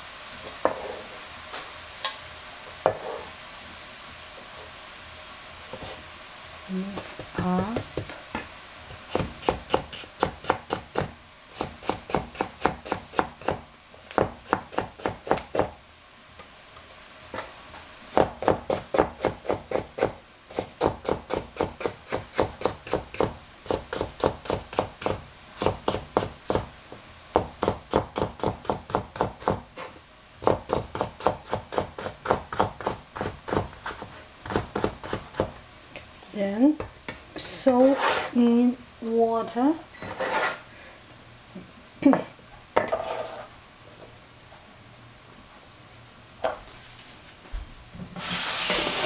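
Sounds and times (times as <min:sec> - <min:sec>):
knife cutting on a cutting board: 0:40.0 - 0:40.6.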